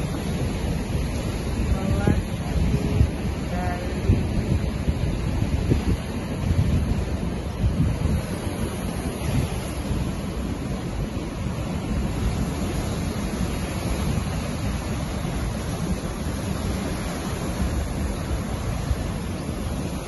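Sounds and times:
waves breaking on sand: 0:00.0 - 0:20.0
wind buffeting microphone: 0:00.0 - 0:20.0.

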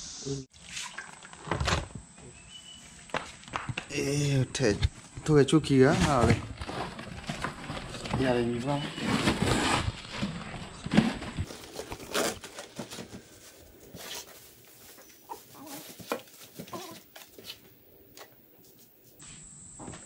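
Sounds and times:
hands rustling paper: 0:10.0 - 0:19.2.

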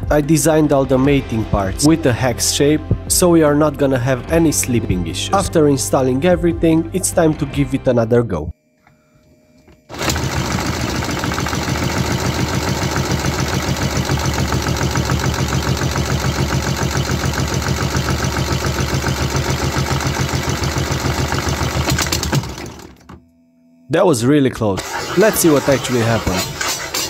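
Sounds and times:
engine cranking chugging: 0:09.9 - 0:23.1, 0:24.8 - 0:27.0.

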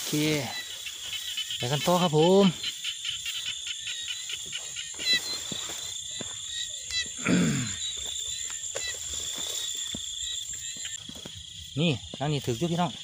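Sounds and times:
footsteps swishing through grass: 0:00.0 - 0:07.2, 0:07.9 - 0:11.8
insects ringing and chirping: 0:00.0 - 0:13.0
low croak-like call: 0:06.6 - 0:08.1.

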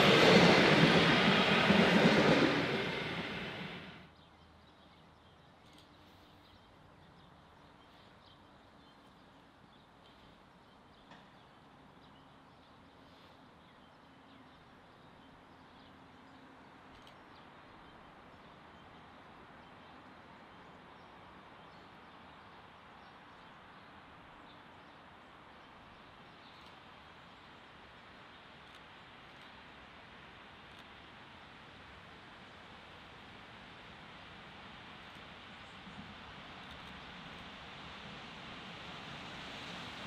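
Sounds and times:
distant steam locomotive: 0:00.0 - 0:04.1, 0:32.0 - 0:40.0.

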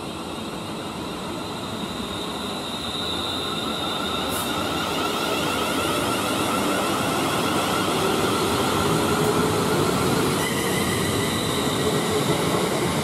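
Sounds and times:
train wheels on rail: 0:00.0 - 0:13.0.

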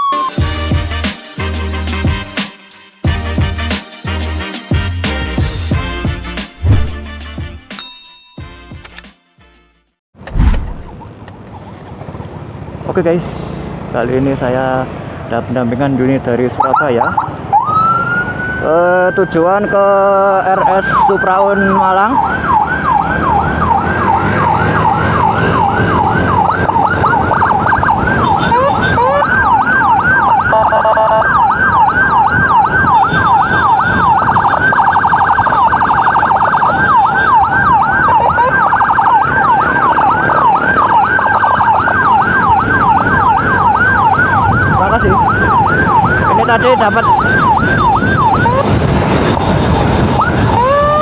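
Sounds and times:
road noise: 0:05.0 - 0:07.9, 0:10.2 - 0:51.0
horn-like siren tone: 0:16.6 - 0:51.0
siren yelp: 0:16.6 - 0:51.0
motorcycle engine: 0:22.2 - 0:33.9, 0:38.8 - 0:46.3.

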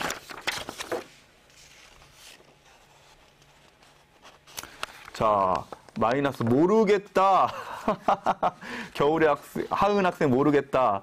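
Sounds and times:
paper rustling and clicking: 0:00.0 - 0:06.6.

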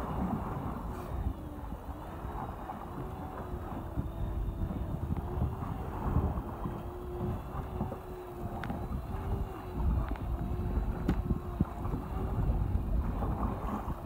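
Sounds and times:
choppy water: 0:00.0 - 0:14.0
steady mechanical hum: 0:00.0 - 0:14.0
wind buffeting microphone: 0:00.0 - 0:14.0
faint clicks: 0:08.4 - 0:11.3.

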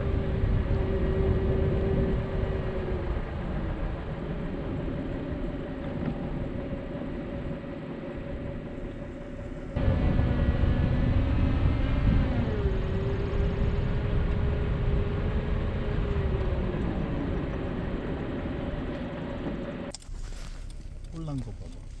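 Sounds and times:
faint whine: 0:00.0 - 0:22.0
road and engine rumble: 0:00.0 - 0:22.0.

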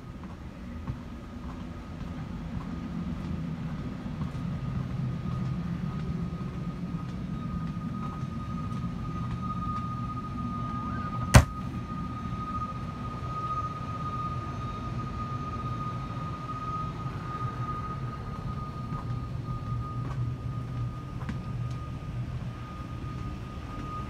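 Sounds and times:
airliner cabin hum: 0:00.0 - 0:13.0
thin steady whine: 0:00.0 - 0:24.0
overhead bin door clack: 0:11.4 - 0:11.6.

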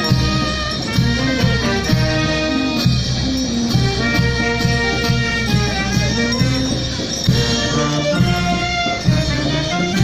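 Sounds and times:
brass band playing dance tune: 0:00.0 - 0:10.0.

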